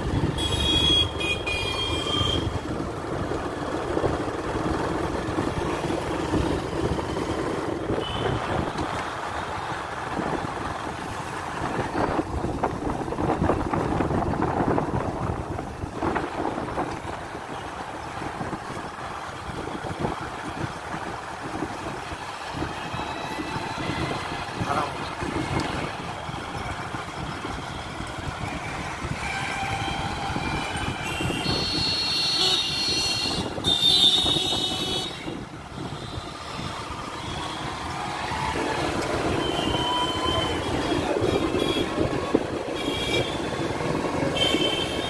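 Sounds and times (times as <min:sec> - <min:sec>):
traffic noise from moving vehicle: 0:00.0 - 0:45.0
wind buffeting microphone: 0:09.8 - 0:45.0.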